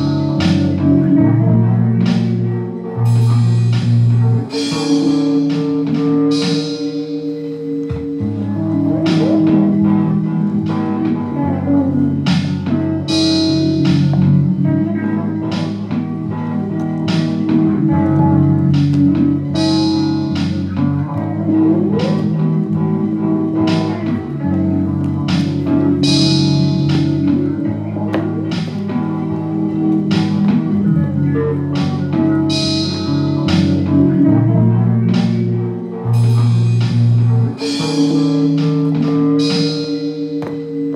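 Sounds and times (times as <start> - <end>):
bass line: 0.0 - 40.9
electric guitar: 0.0 - 40.9
rock song: 0.0 - 40.9
drum and cymbal hits: 3.1 - 9.9.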